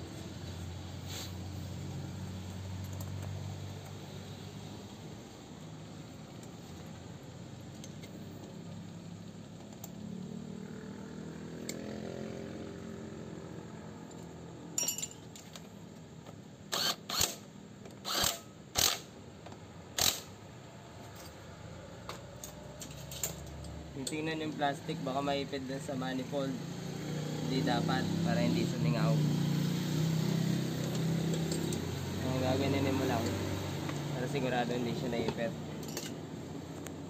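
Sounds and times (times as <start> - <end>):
metal tools clinking: 14.8 - 15.6, 22.4 - 24.6, 30.8 - 31.9, 35.7 - 36.2.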